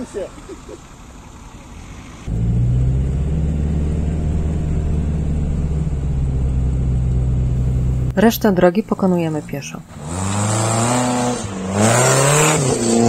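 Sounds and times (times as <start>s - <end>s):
vehicle engine running steadily: 0.0s - 10.0s.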